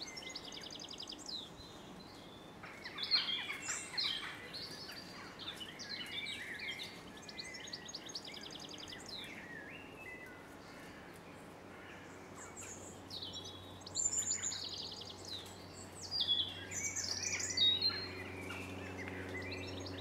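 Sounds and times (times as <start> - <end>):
songbirds singing: 0.0 - 20.0
steady low hum: 10.3 - 20.0.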